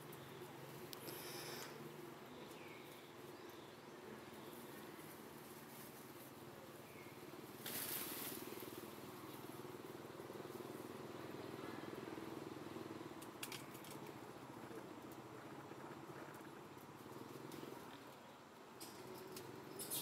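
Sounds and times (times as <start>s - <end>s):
rustle of leaves and twigs: 0.0s - 12.4s, 13.1s - 15.3s
twig clicks: 13.2s - 14.2s.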